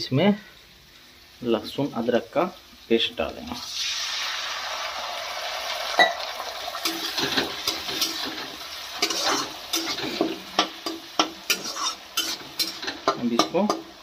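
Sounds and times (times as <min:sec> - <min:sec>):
paste sizzling in hot oil: 0:00.6 - 0:14.0
metal spatula scraping a pan: 0:06.7 - 0:13.9.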